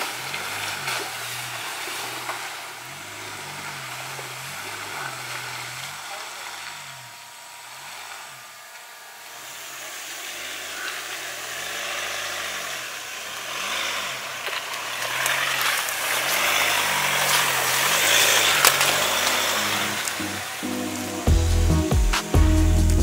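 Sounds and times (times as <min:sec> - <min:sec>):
hiss: 0:00.0 - 0:23.0
pickup truck engine: 0:00.0 - 0:23.0.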